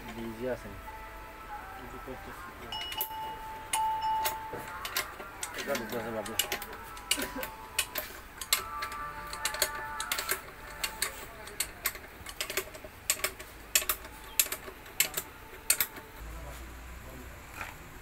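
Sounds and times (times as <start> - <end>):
metallic gear clicks and taps: 3.7 - 16.1.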